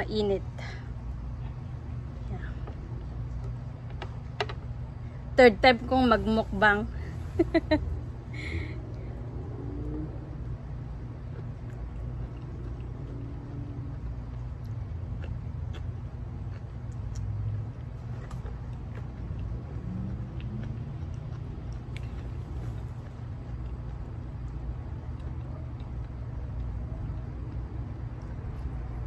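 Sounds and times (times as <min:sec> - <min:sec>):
low outdoor rumble: 0:00.0 - 0:29.0
person chewing food: 0:08.8 - 0:29.0.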